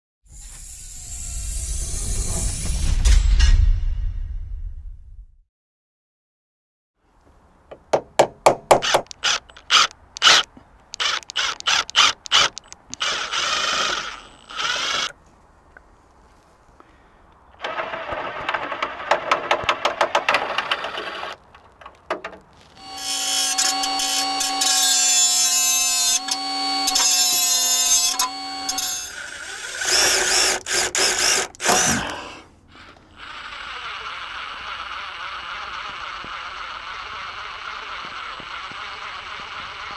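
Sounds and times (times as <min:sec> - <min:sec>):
cordless drill whining: 0:08.8 - 0:15.2, 0:22.8 - 0:39.9.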